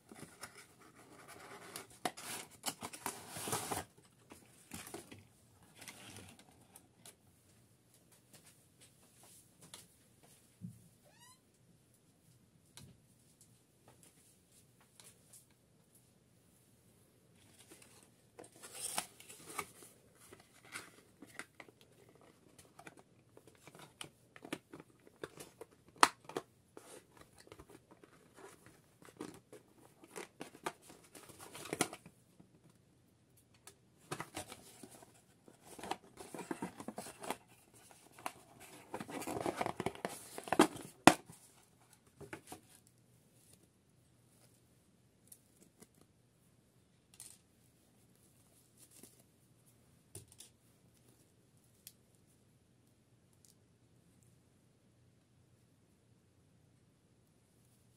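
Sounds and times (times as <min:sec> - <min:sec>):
cardboard rustling and scraping: 0:00.0 - 0:04.0, 0:17.4 - 0:23.9, 0:34.1 - 0:42.8.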